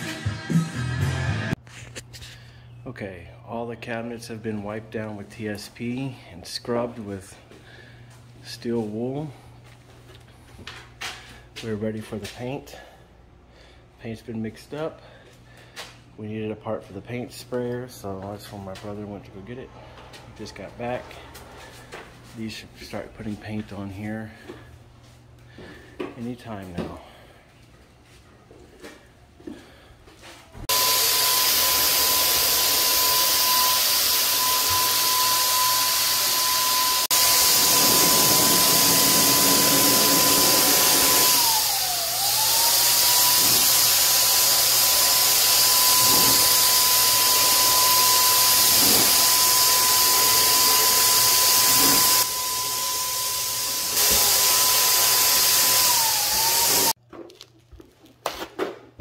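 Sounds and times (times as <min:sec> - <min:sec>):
electric paint sprayer motor whine: 0:30.7 - 0:57.0.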